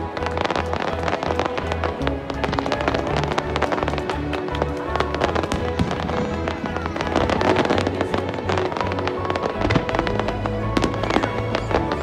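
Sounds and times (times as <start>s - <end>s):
fireworks bangs and crackling: 0.0s - 12.0s
music with steady bass: 0.0s - 12.0s.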